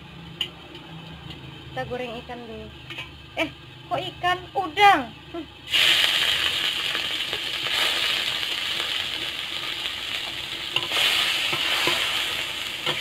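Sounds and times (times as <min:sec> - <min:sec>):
shrimp sizzling in hot oil: 0:00.0 - 0:13.0
metal spatula scraping wok: 0:10.7 - 0:13.0.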